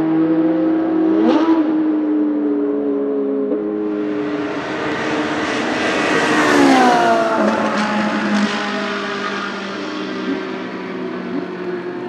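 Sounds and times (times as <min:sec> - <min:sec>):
race car passing: 0:03.6 - 0:12.0.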